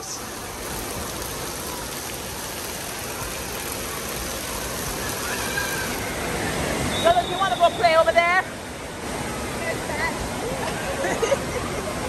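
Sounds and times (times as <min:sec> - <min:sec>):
water spraying and splashing: 0:00.0 - 0:10.5.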